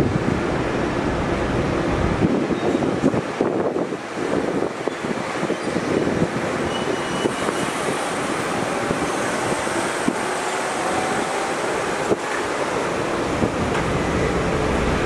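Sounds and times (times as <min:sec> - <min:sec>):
jet engines at takeoff power: 0:07.2 - 0:15.0.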